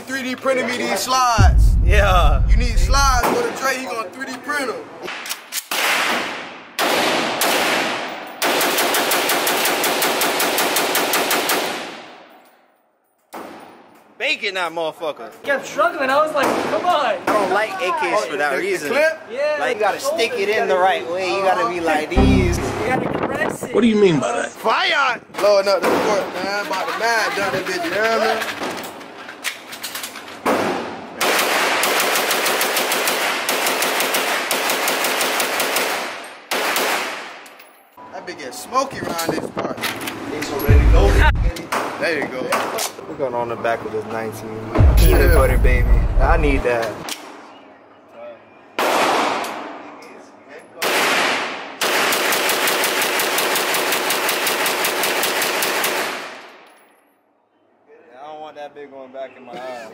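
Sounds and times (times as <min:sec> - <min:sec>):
rifle shots echoing indoors: 0:05.6 - 0:12.3, 0:31.2 - 0:37.4.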